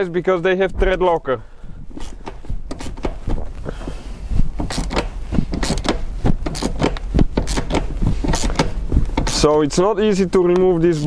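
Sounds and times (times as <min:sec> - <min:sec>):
hand ratchet clicking: 0:01.9 - 0:03.4, 0:04.6 - 0:09.6.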